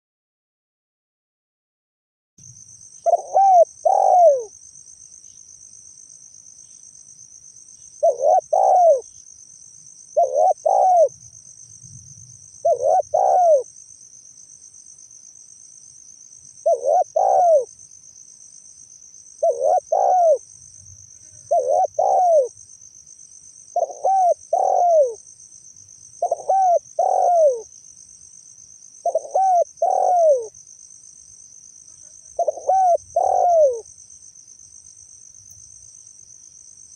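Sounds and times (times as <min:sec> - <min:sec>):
high insect trill: 0:02.4 - 0:36.9
dove cooing: 0:03.0 - 0:04.6, 0:08.0 - 0:09.1, 0:10.2 - 0:11.2, 0:12.6 - 0:13.7, 0:16.6 - 0:17.7, 0:19.4 - 0:20.4, 0:21.3 - 0:22.6, 0:23.7 - 0:25.2, 0:26.2 - 0:27.7, 0:29.0 - 0:30.5, 0:32.0 - 0:33.8.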